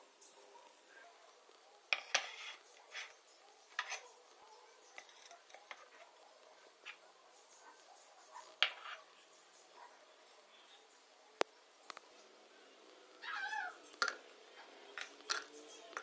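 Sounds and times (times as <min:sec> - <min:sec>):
ceramic plates clinking on stone: 0:02.0 - 0:03.1, 0:03.7 - 0:04.1, 0:14.0 - 0:14.2, 0:15.0 - 0:16.0.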